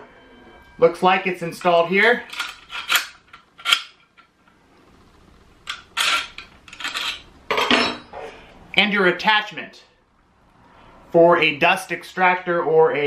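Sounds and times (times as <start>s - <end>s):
metal clicks and rattles: 1.6s - 4.6s
scraping metal clatters: 5.7s - 8.2s.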